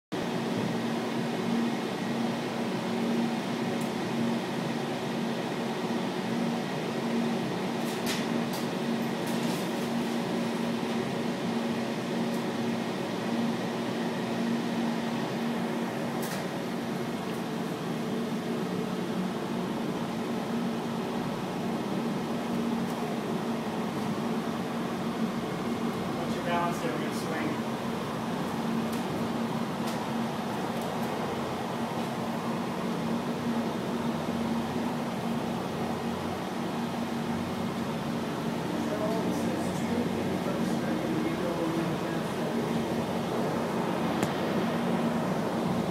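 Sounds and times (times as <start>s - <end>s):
cable car cabin hum: 10.2s - 45.9s.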